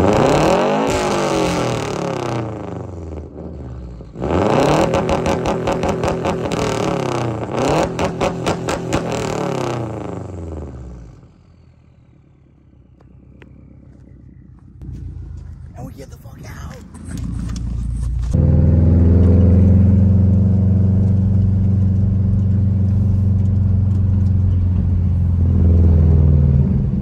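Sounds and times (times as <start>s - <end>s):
car engine revving: 0.0s - 27.0s.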